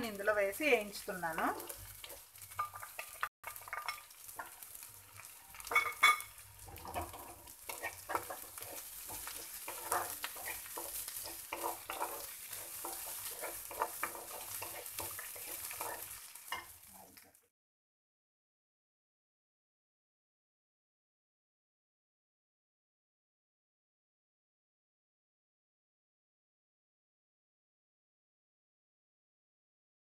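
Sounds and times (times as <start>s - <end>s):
light sizzle of frying: 0.0s - 17.6s
wooden spatula scraping pan: 5.2s - 17.2s.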